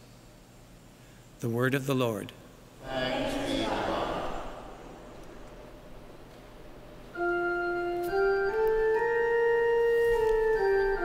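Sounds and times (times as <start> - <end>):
organ playing held chords: 5.8 - 11.0.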